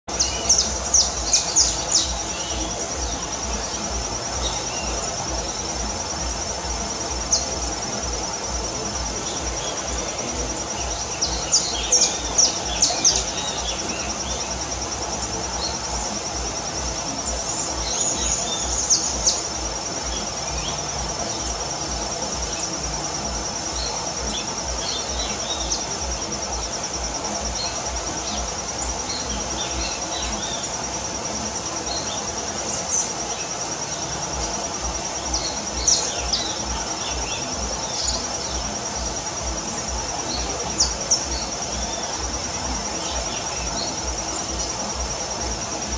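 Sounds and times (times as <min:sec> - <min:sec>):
small birds chirping: 0:00.0 - 0:45.9
high insect trilling: 0:00.1 - 0:45.9.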